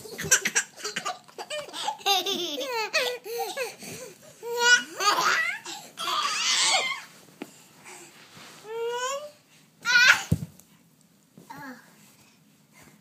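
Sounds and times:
baby laughing and squealing: 4.5 - 7.1.

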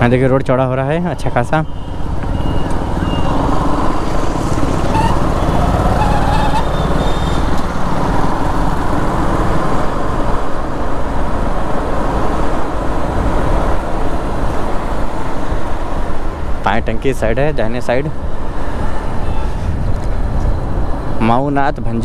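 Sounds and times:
passing vehicles: 0.0 - 22.0
motorbike engine: 1.6 - 9.9
wind buffeting microphone: 18.1 - 21.2.

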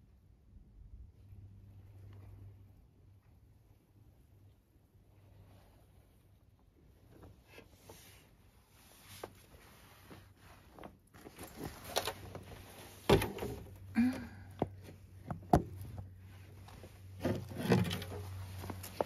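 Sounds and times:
faint low hum: 0.0 - 19.0
scraping: 15.7 - 19.0.

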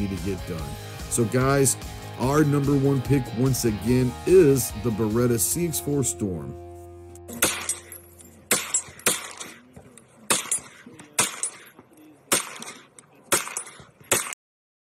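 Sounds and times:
gunshots with echo: 7.4 - 9.6, 10.3 - 11.7, 12.3 - 14.4.

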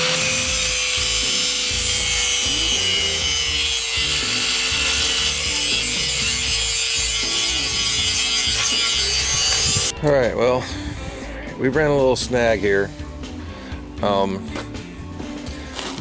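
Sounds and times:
angle grinder grinding steel: 0.0 - 9.9.

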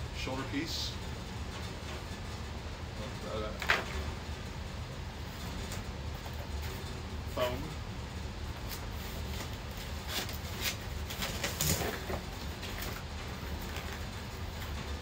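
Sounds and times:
steady low hum: 0.0 - 15.0
cardboard packaging rustling: 8.7 - 14.1.

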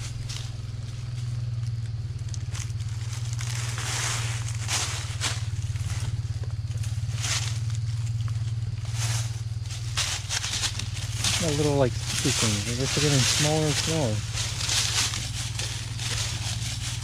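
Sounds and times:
footsteps crunching dry leaves: 0.0 - 17.0
steady low hum: 0.0 - 17.0.

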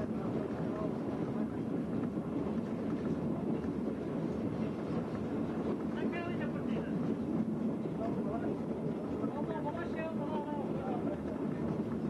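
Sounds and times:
rail trolley engine rumble: 0.0 - 12.0.

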